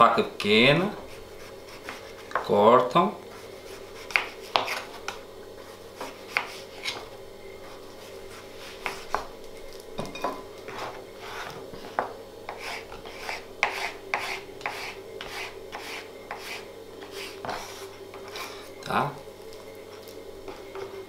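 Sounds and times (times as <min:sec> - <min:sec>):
steady hum: 0:00.0 - 0:21.0
knife cutting on plastic board: 0:03.7 - 0:05.2, 0:10.7 - 0:18.6.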